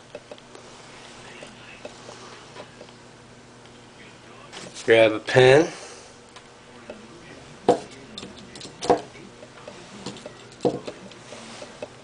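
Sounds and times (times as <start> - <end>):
small hard parts clicking and knocking: 10.0 - 11.0.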